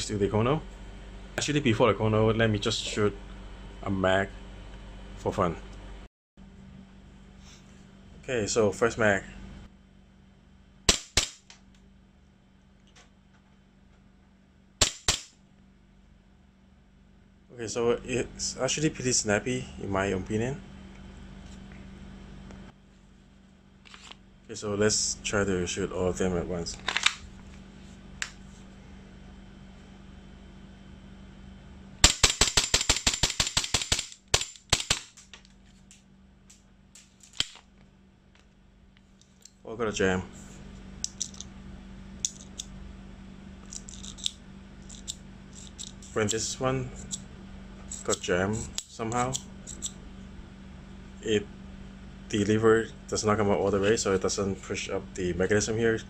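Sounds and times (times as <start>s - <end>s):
airsoft pistol shots: 10.9s - 11.5s, 14.8s - 15.4s, 32.0s - 35.2s
gun handling clicks: 32.0s - 35.6s.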